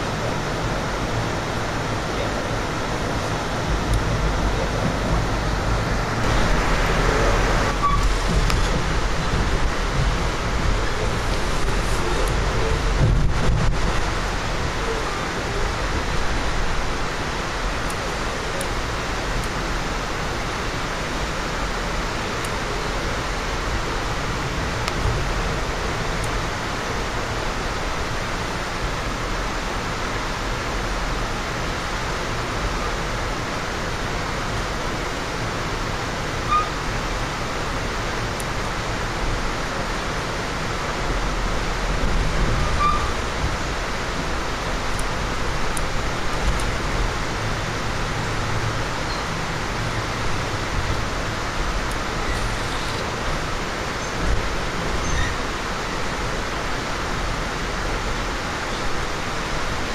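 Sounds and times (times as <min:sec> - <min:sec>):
train car rumble and hiss: 0:00.0 - 0:59.9
brief high squeaks: 0:07.7 - 0:08.3, 0:36.5 - 0:36.8, 0:42.6 - 0:43.2, 0:55.0 - 0:55.4.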